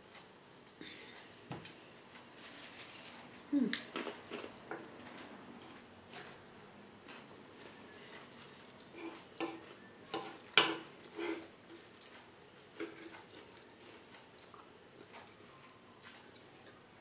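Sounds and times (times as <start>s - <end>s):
chewing: 3.7s - 16.8s.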